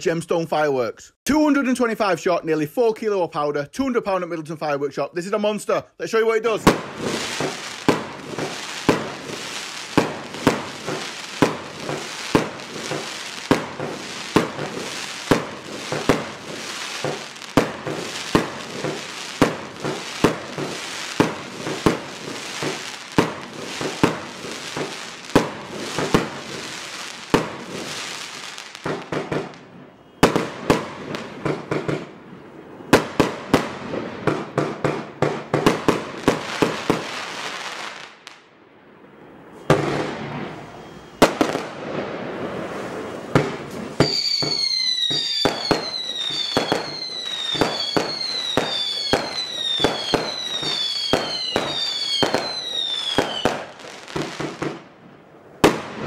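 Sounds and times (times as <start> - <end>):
firework cake shots: 6.5 - 32.1, 42.7 - 54.8.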